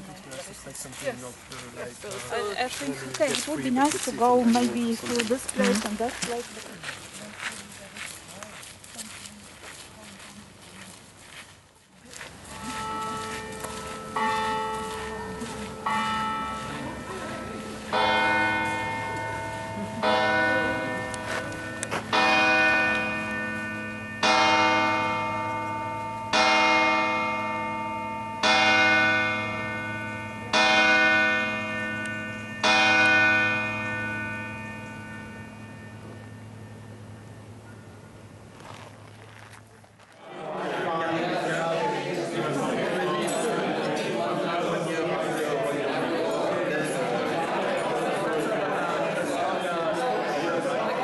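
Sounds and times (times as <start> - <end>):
church bells ringing: 12.4 - 38.5.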